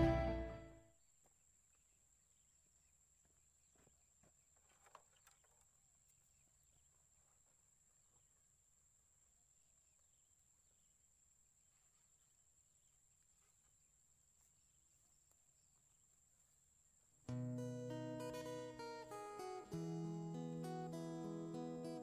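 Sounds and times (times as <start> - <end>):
high-pitched hum: 0.0 - 0.7
background music: 0.0 - 0.8.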